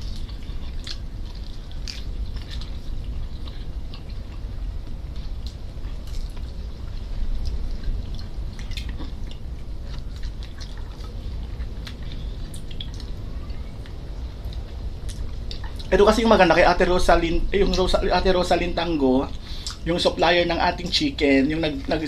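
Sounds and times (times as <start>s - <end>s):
people chewing and smacking: 0.0s - 22.0s
wet mouth clicks: 19.3s - 19.8s.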